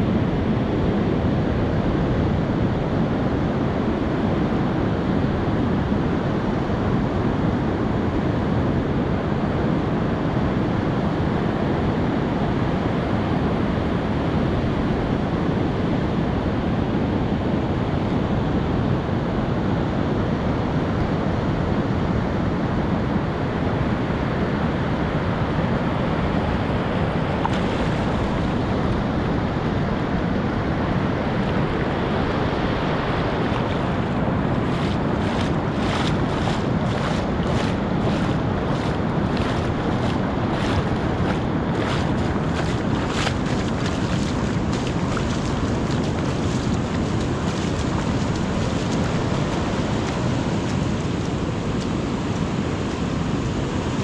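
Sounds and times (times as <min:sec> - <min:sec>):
ocean surf breaking on beach: 0:00.0 - 0:54.0
wind on microphone: 0:00.0 - 0:54.0.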